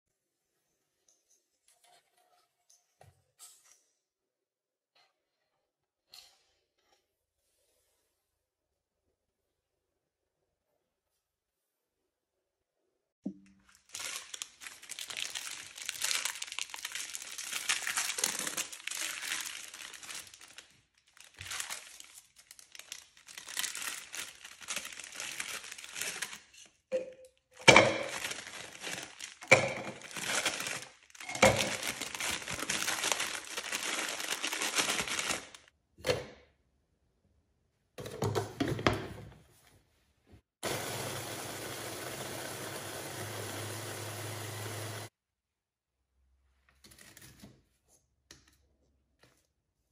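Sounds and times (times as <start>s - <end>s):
biscuits crinkling and crunching: 13.6s - 26.8s, 27.6s - 35.7s.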